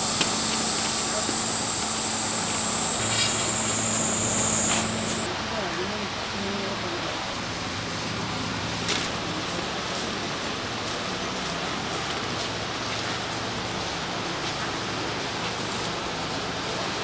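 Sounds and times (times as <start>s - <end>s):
chicken sizzling on grill: 0.0s - 5.3s.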